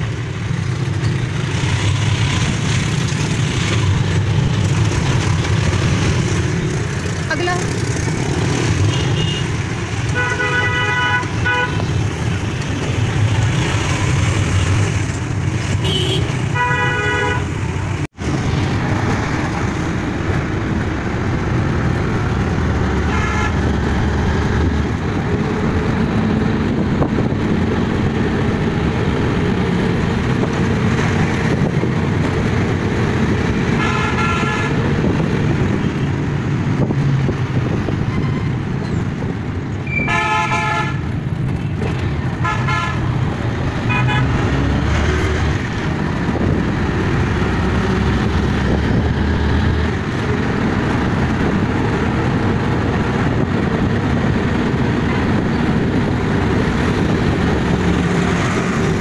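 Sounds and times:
auto-rickshaw engine droning: 0.0 - 59.0
street traffic noise: 0.0 - 59.0
vehicle horns tooting: 8.8 - 11.9, 15.8 - 17.6, 23.0 - 23.7, 33.7 - 34.9, 39.9 - 41.1, 42.4 - 43.1, 43.8 - 44.4.

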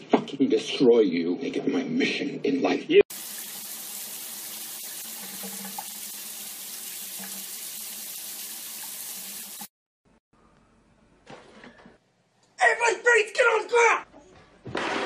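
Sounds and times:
shower water spraying: 3.1 - 9.7.

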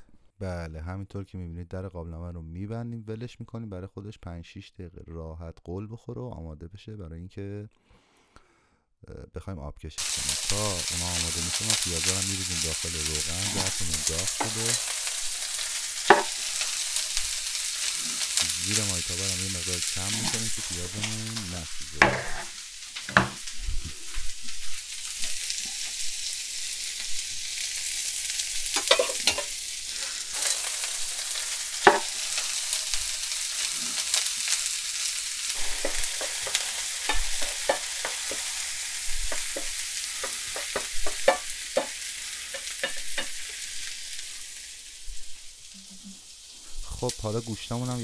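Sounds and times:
onions sizzling in oil: 10.0 - 48.0.

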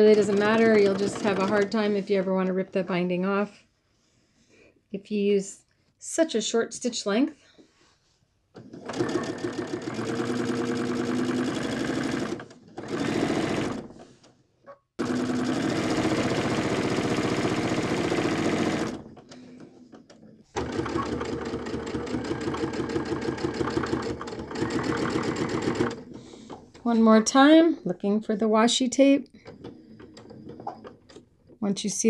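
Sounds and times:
electric sewing machine stitching: 0.0 - 2.0, 8.6 - 14.1, 15.0 - 19.3, 20.6 - 26.2.

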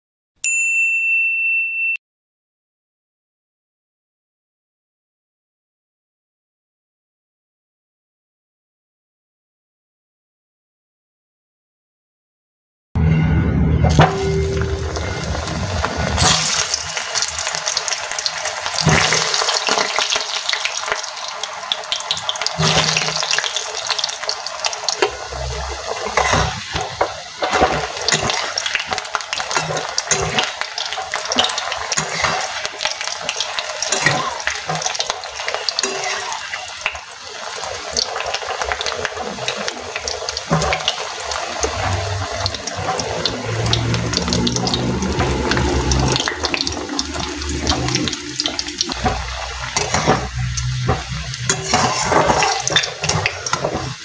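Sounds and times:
potatoes sizzling in hot oil: 14.0 - 54.0
spatula scraping a pan: 25.0 - 37.0, 40.5 - 54.0.

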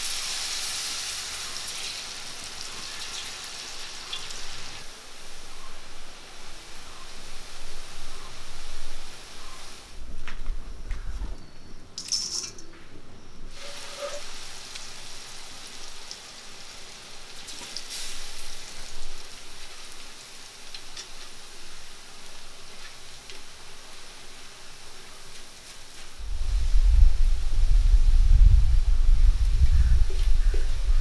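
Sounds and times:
food sizzling in hot oil: 0.0 - 4.9, 13.5 - 26.2.

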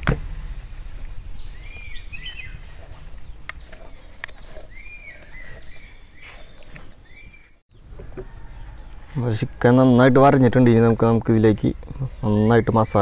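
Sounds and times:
low outdoor rumble: 0.0 - 7.2
bird chirping: 1.3 - 9.2.

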